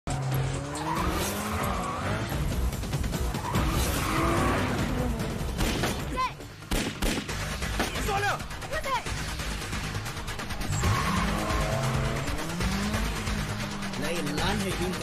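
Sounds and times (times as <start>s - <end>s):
car engine revving: 0.1s - 6.0s, 9.1s - 15.0s
film music score: 0.1s - 15.0s.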